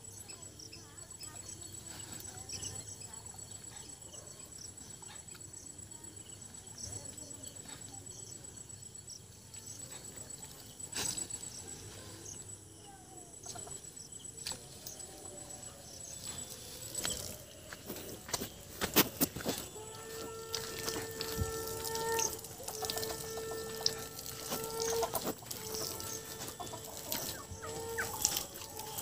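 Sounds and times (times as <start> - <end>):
high-pitched insect trill: 0.0 - 29.0
water splashing and dripping: 16.3 - 29.0.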